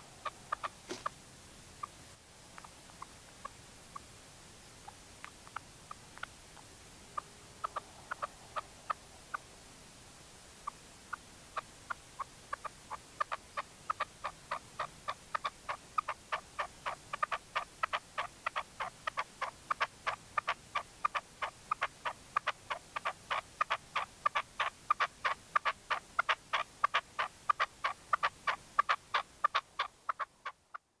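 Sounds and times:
partridge calling: 0.0 - 1.2, 4.8 - 9.5, 10.6 - 30.8.

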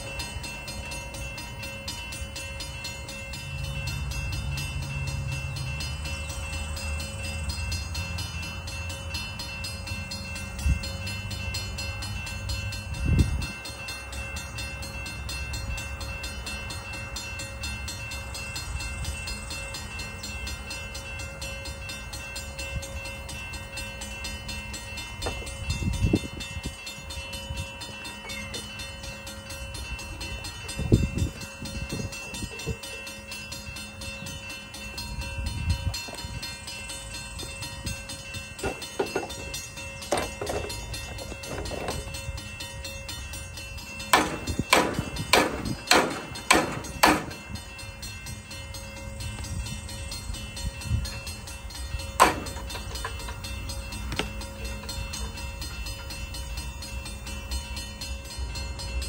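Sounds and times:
metal clunks and knocks: 38.6 - 42.0, 44.1 - 47.4.

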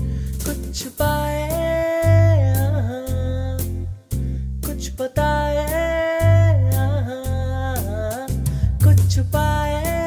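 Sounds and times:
steady bass notes: 0.0 - 10.0.

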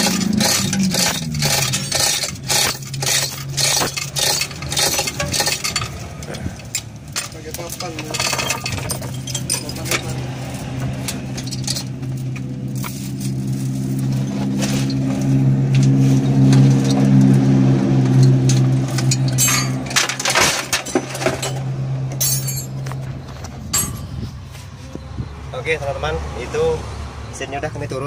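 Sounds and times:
metal chain rattling and clinking: 0.0 - 15.4, 18.0 - 24.2.

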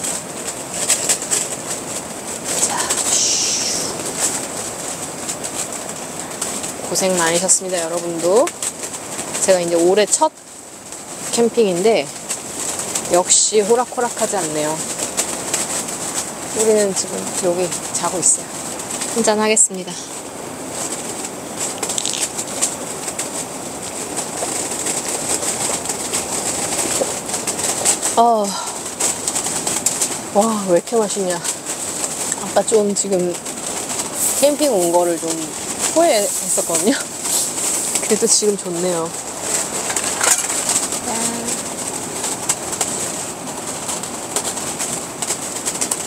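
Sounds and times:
tent fabric flapping: 0.0 - 46.0
wind rushing: 0.9 - 5.2.

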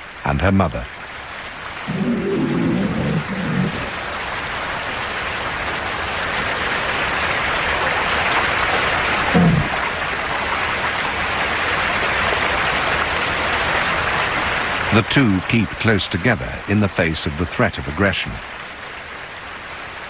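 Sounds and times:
river rapids rushing: 1.9 - 4.3.

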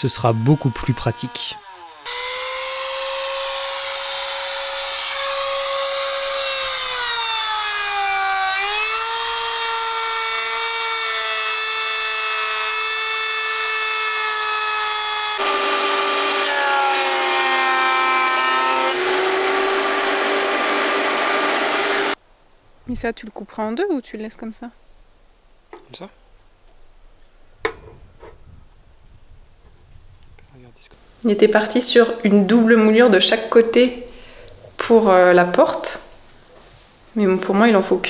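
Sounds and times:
electric thickness planer running: 0.0 - 22.2
trim router cutting wood: 0.0 - 22.2.

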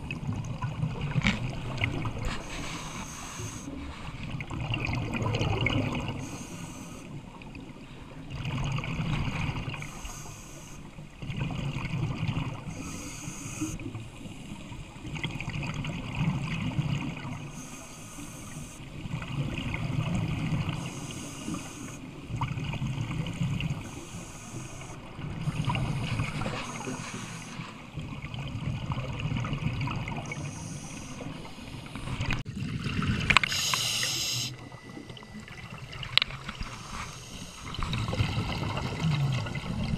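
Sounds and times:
exhaled bubbles underwater: 0.0 - 39.9
regulator hiss on inhale: 2.2 - 4.2, 6.1 - 7.2, 9.8 - 11.0, 12.7 - 14.6, 17.5 - 19.0, 20.7 - 22.1, 23.8 - 27.9, 30.4 - 32.4, 33.4 - 34.7, 36.6 - 38.1.

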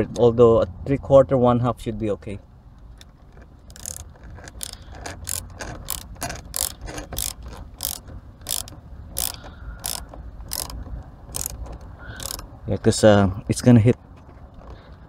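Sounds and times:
hand ratchet clicking: 3.0 - 12.5.

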